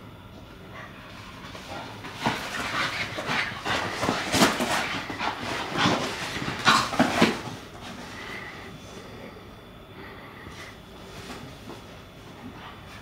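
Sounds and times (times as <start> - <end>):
puppy scuffling and thumping: 1.1 - 8.5, 11.1 - 13.0.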